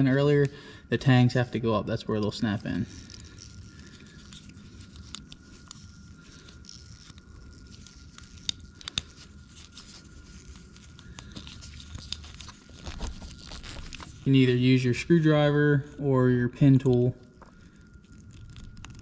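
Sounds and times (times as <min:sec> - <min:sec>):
plastic connector handling: 0:06.6 - 0:14.2.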